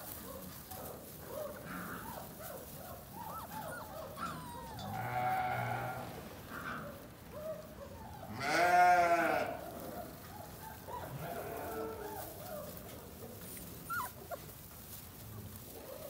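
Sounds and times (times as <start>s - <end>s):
puppies squeaking: 2.1s - 5.0s, 13.8s - 14.6s
wavering animal cry: 3.2s - 6.0s.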